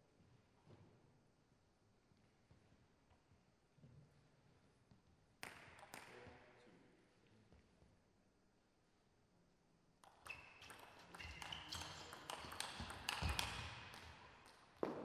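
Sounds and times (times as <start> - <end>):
table tennis ball clicking: 10.0 - 14.6.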